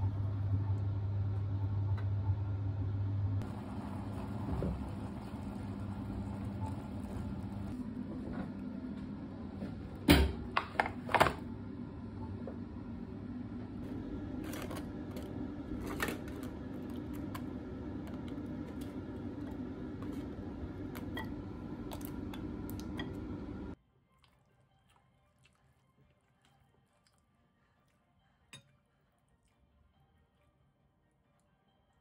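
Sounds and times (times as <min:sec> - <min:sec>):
steady low hum: 0:00.0 - 0:23.8.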